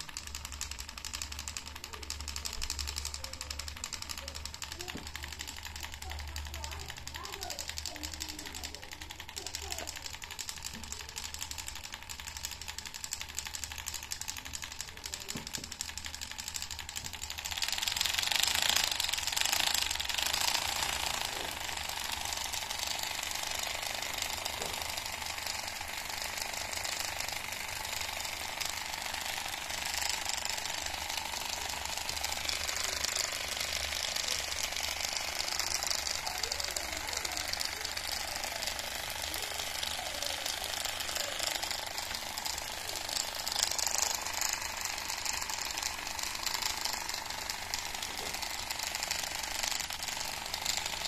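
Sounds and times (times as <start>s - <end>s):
model engine mechanical rattle: 0.0s - 51.0s.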